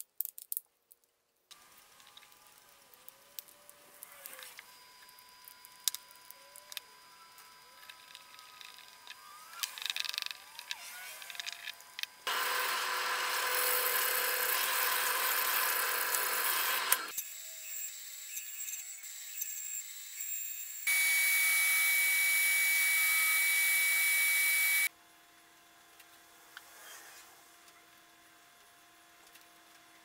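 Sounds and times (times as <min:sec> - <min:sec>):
disc sander whining: 0:01.8 - 0:17.2, 0:20.9 - 0:24.9
band saw cutting wood: 0:10.6 - 0:18.7
loud power tool running: 0:12.2 - 0:17.2, 0:20.8 - 0:24.9.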